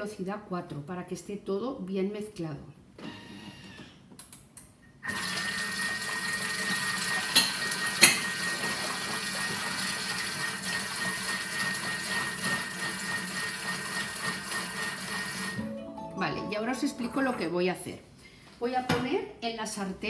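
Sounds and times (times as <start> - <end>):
food processor blending: 5.0 - 15.6
liquid churning in a jug: 5.1 - 15.6.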